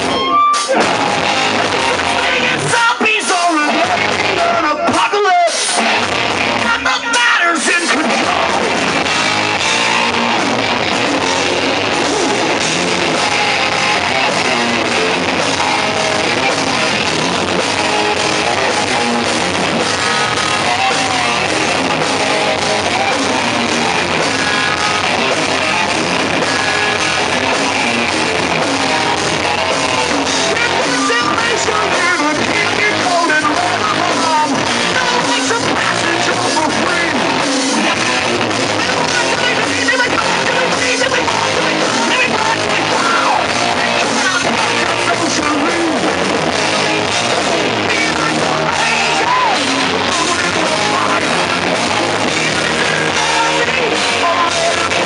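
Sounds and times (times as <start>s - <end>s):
bass guitar: 0.0s - 55.0s
distorted electric guitars: 0.0s - 55.0s
drum kit: 0.0s - 55.0s
man singing into microphone: 2.1s - 6.0s, 30.4s - 46.8s, 47.6s - 55.0s.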